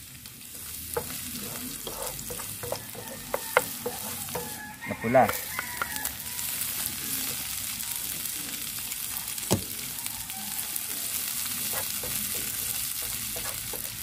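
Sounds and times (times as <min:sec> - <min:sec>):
garlic and onion sizzling in oil: 0:00.0 - 0:14.0
wooden spatula stirring: 0:00.6 - 0:06.1, 0:11.5 - 0:14.0.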